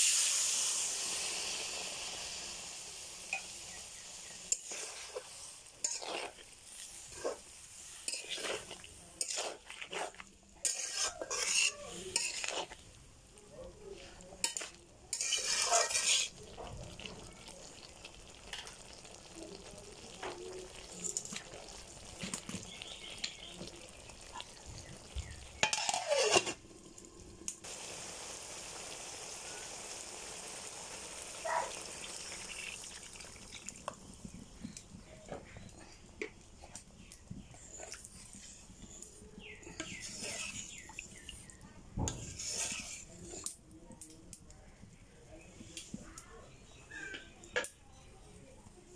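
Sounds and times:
vegetables sizzling: 0:00.0 - 0:43.6
spatula scraping metal wok: 0:04.2 - 0:12.8, 0:14.0 - 0:16.6, 0:25.2 - 0:26.6, 0:37.4 - 0:43.6.

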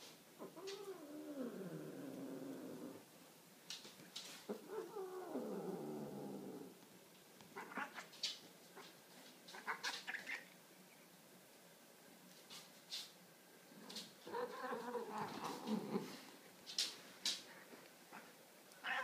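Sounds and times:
soft clicks and rustles on rug: 0:03.6 - 0:04.6, 0:12.2 - 0:13.2, 0:14.8 - 0:18.8.

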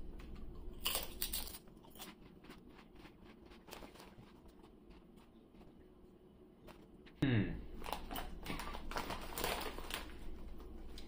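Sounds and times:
potato chip crunching: 0:00.2 - 0:05.3, 0:07.8 - 0:11.0.

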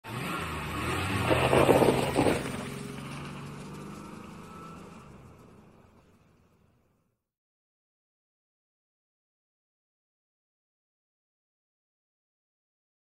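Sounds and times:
car driving away: 0:00.0 - 0:07.0.

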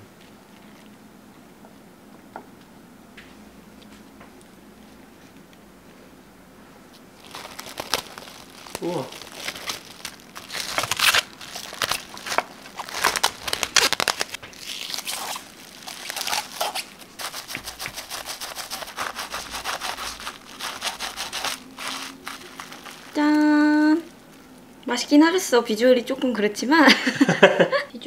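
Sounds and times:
plastic cling wrap crinkling: 0:07.0 - 0:25.8.

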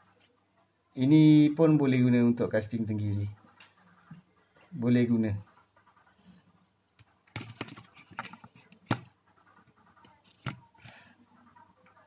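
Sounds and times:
plastic spool handling noise: 0:07.0 - 0:09.2.

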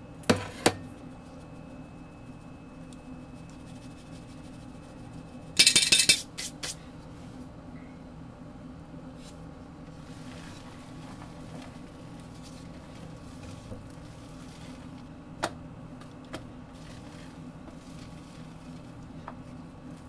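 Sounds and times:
steady low hum: 0:00.0 - 0:20.0
whisk swishing batter: 0:01.0 - 0:06.7, 0:09.9 - 0:15.1, 0:16.5 - 0:20.0.

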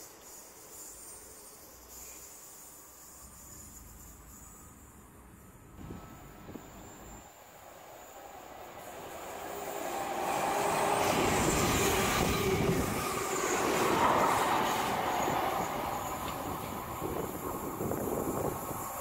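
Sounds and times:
electric train passing at speed: 0:00.0 - 0:19.0
wheels rushing on rail: 0:00.0 - 0:19.0
wheel squeal: 0:09.2 - 0:19.0.

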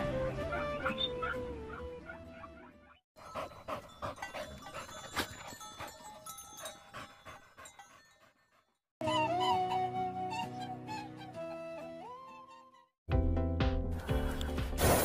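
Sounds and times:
dog panting: 0:03.2 - 0:08.8.

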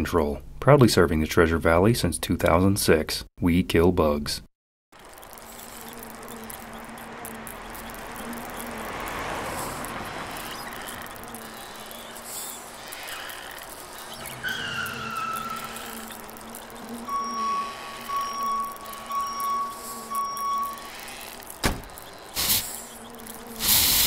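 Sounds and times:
noisy background: 0:05.0 - 0:24.0
squeal falling in pitch: 0:14.1 - 0:16.1, 0:17.1 - 0:21.4
high beep: 0:17.0 - 0:21.4.

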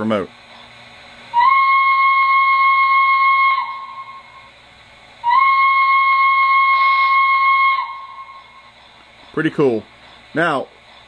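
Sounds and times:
steam hiss: 0:00.0 - 0:11.0
high-pitched steam whistle blasts: 0:01.3 - 0:04.6, 0:05.2 - 0:08.8.

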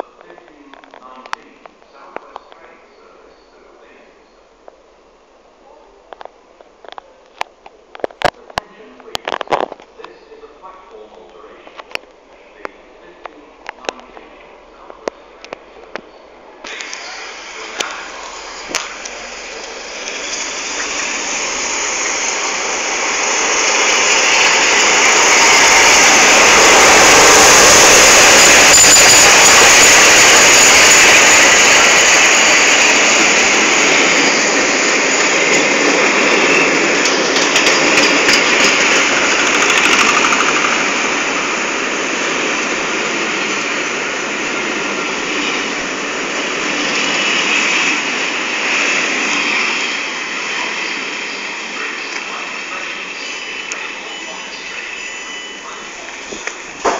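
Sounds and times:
train passing rushing noise: 0:16.6 - 0:56.9
train wheels clicking: 0:16.7 - 0:56.9.

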